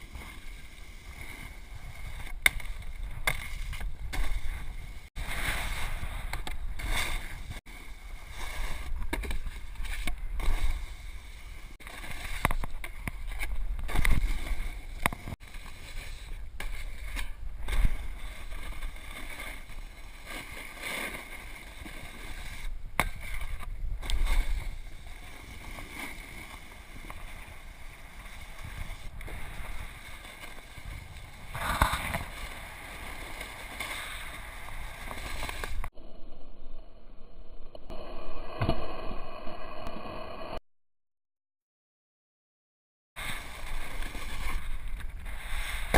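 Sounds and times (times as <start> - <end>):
snowboard scraping over snow: 0.0 - 12.4, 13.2 - 35.8, 43.2 - 45.9
wind rumbling on microphone: 0.0 - 20.0, 21.7 - 38.2.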